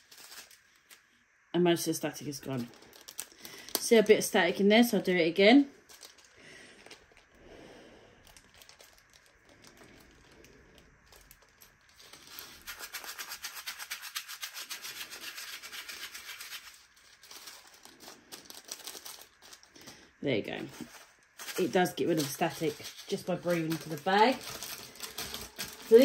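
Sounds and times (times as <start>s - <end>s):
beads rattling in plastic bag: 0.0s - 0.9s, 2.3s - 5.1s, 5.8s - 7.3s, 8.2s - 26.0s
plastic bag rustling: 0.0s - 1.0s, 1.9s - 26.0s
breathing into bag: 2.7s - 3.8s, 5.8s - 12.7s, 16.9s - 20.2s, 22.7s - 26.0s.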